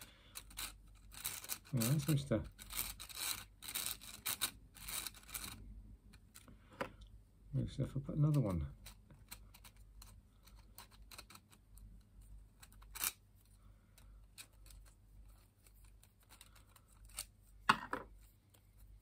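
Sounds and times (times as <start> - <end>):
plastic pieces clacking: 0.0 - 6.5, 12.6 - 13.2
plastic puzzle pieces clicking: 0.0 - 6.5, 8.3 - 11.9, 12.6 - 13.2, 14.0 - 17.3.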